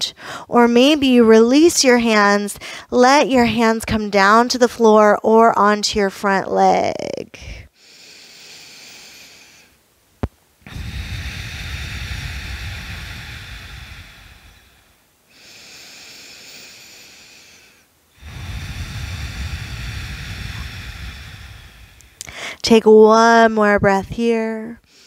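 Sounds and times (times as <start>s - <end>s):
woman breathing deeply: 0.1s - 0.5s, 2.6s - 2.9s, 7.4s - 9.8s, 10.6s - 22.7s.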